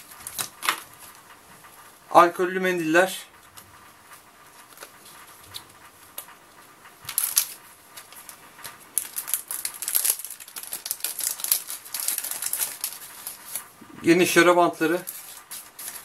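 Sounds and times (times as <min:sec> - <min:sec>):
paper packets crinkling: 0:07.1 - 0:13.8, 0:14.7 - 0:16.0.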